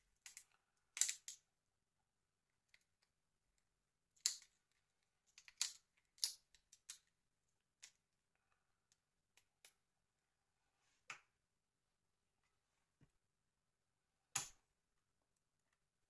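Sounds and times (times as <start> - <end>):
plastic phone parts clicking: 0.2 - 1.4.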